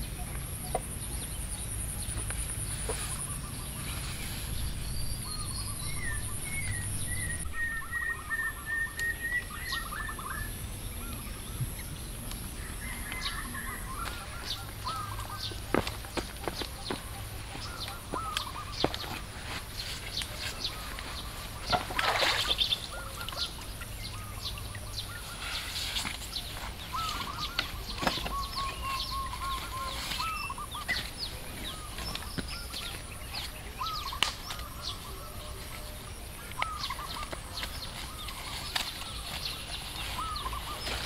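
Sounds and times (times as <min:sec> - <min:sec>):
wild birds chirping and calling: 0:00.0 - 0:41.0
footsteps scuffing on wood: 0:14.9 - 0:21.3.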